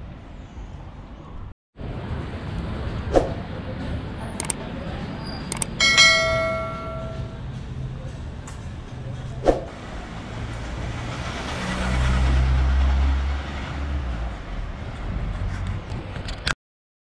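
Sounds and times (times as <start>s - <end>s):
sharp clack: 5.5s - 7.4s
car driving past: 9.4s - 15.8s.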